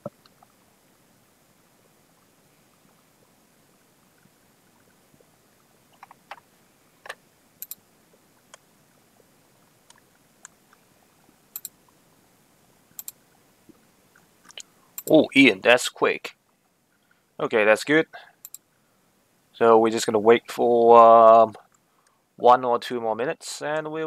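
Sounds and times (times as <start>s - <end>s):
faint hiss: 0.0s - 24.0s
sharp clicks: 7.0s - 7.8s, 11.5s - 11.8s, 12.9s - 13.2s, 14.2s - 15.2s, 18.4s - 18.6s.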